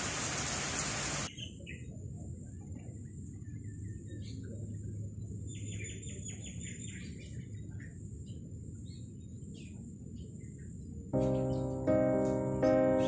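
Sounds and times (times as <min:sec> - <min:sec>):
birds chirping: 0:03.4 - 0:13.0.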